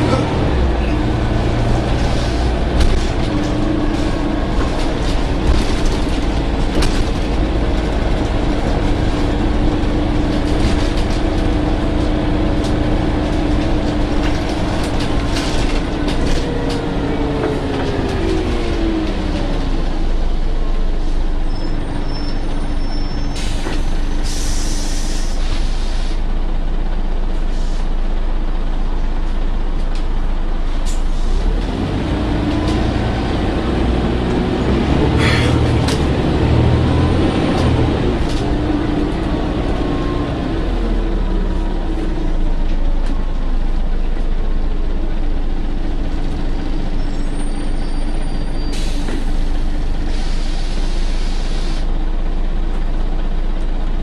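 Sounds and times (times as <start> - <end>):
bus diesel engine: 0.0 - 54.0
air brake hisses: 23.3 - 26.2, 48.6 - 49.3, 50.0 - 51.9.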